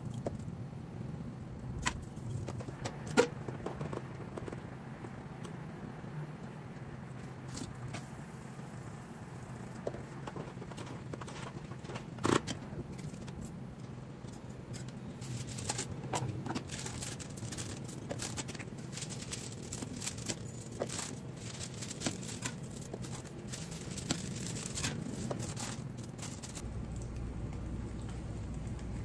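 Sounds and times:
paper rustling and crinkling: 9.8 - 13.6, 14.3 - 26.6.

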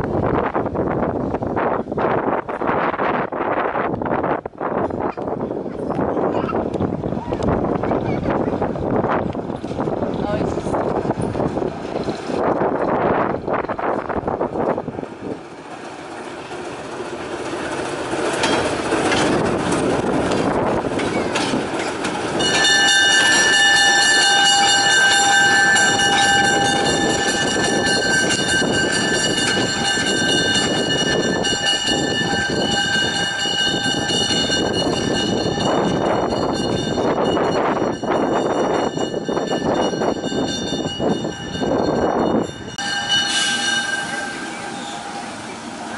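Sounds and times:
diesel locomotive running: 0.0 - 45.9
steady high-pitched tone: 42.6 - 45.9.

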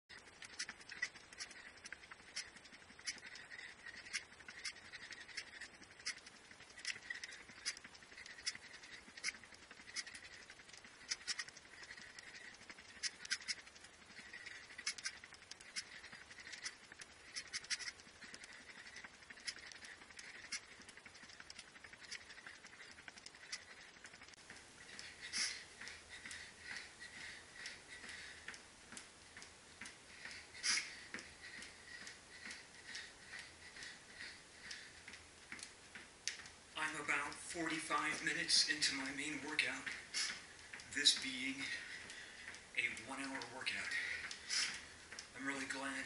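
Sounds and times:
rapid patter of footfalls: 0.1 - 46.0
pulsing squeaky hiss of breathing: 0.2 - 28.6, 30.1 - 35.2, 39.7 - 40.5, 43.8 - 45.9.

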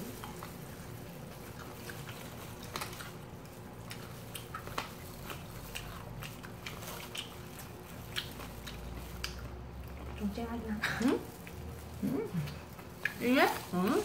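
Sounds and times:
people chewing crispy chicken: 0.0 - 14.0.

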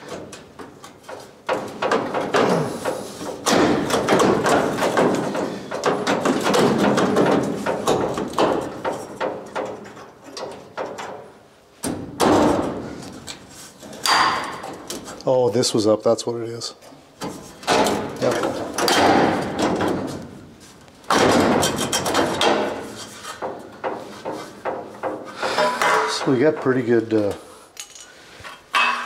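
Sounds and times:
metal panel thumps and knocks: 0.6 - 12.8, 17.6 - 20.2, 21.1 - 26.9.

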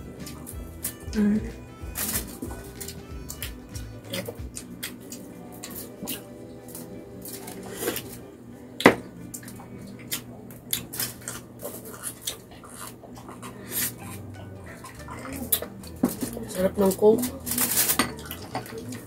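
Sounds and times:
fingers on aluminium foil: 0.8 - 8.2, 14.9 - 19.0
chewing and lip smacking: 1.8 - 8.2, 8.8 - 17.4, 18.1 - 19.0.

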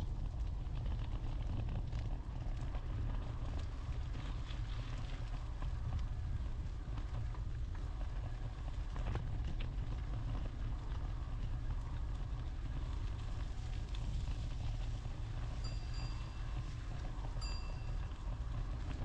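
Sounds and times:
short high ringing note: 15.6 - 16.7, 17.4 - 18.1.

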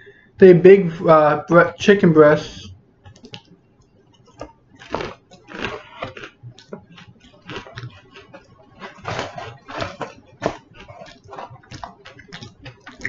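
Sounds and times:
packaging rustling and crinkling: 7.4 - 13.0.

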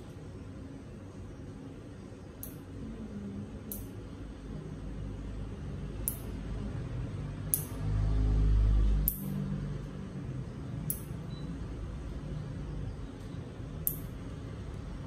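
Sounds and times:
nail clipper clicking: 2.4 - 2.6, 3.7 - 3.9, 6.0 - 6.3, 7.5 - 7.8.

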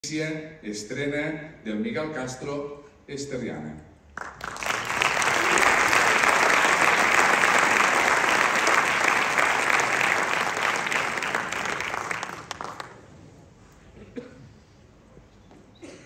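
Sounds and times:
audience applauding: 4.2 - 13.1.

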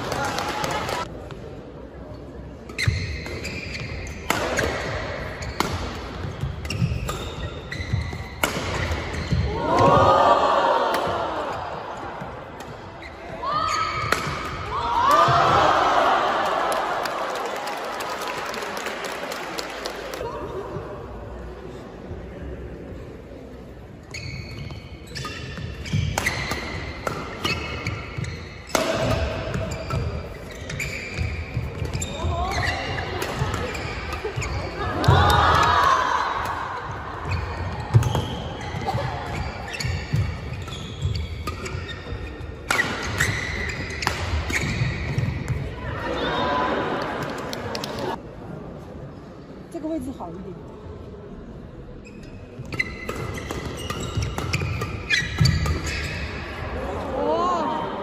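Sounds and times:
shoes squeaking on court: 2.2 - 9.5, 24.0 - 34.8, 37.2 - 45.6, 52.0 - 56.6.

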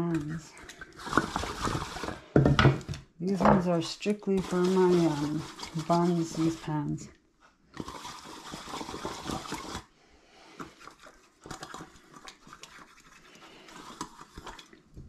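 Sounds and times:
hand rubbing oil on pans: 3.6 - 7.0.

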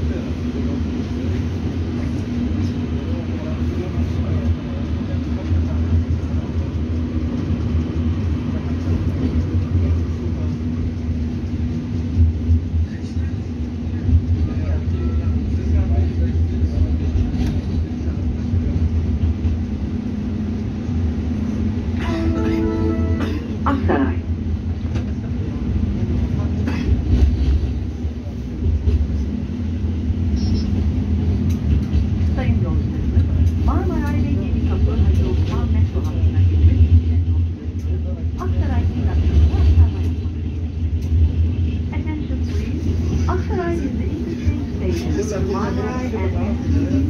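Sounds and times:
tram rumbling: 0.0 - 47.0
brief high tone: 22.0 - 23.2.

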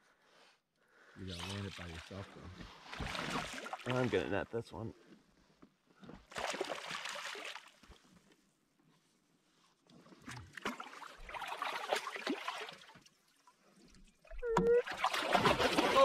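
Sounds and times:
fish thrashing and splashing water: 2.8 - 4.1, 6.3 - 7.8, 10.2 - 13.1, 14.3 - 16.0.

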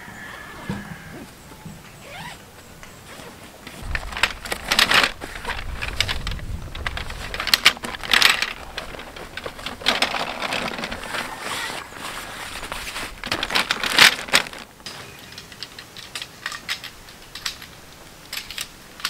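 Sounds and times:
nylon tent fabric rustling: 2.0 - 15.4.

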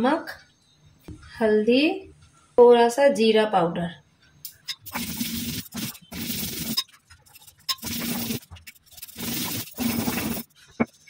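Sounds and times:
stone roller grinding on stone: 4.6 - 11.0.

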